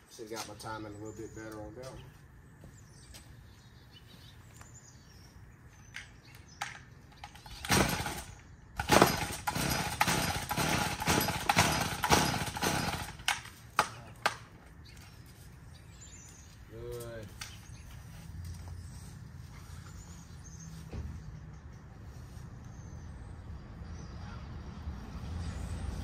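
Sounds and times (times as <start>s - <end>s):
pull-starter rasping pulls: 7.2s - 13.4s.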